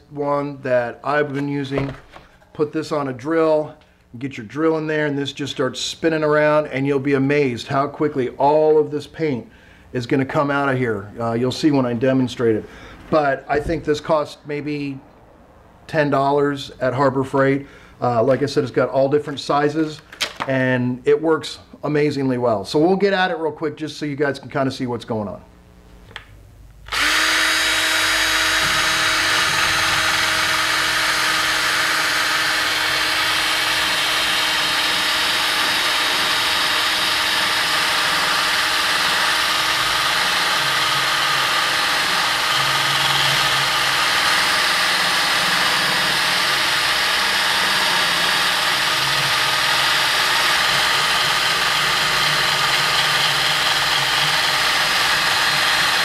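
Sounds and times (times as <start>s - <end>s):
cordless drill motor running: 26.9s - 56.0s.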